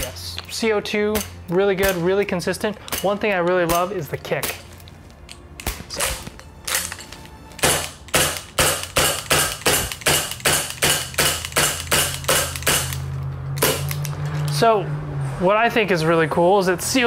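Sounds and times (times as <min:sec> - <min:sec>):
airsoft pistol shots: 0:07.6 - 0:13.0.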